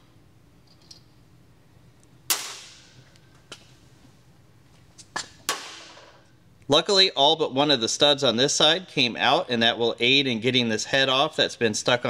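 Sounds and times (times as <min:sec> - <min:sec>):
metallic cracks of nuts snapping: 0:02.3 - 0:03.2, 0:05.5 - 0:06.1.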